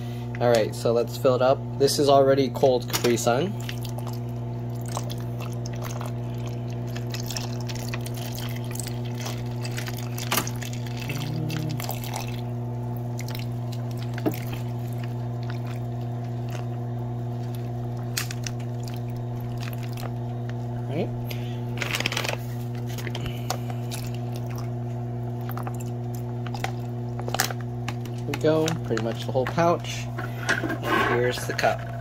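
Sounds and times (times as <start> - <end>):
ice maker humming: 0.0 - 32.0
juice trickling onto ice: 3.5 - 20.7, 22.7 - 29.9.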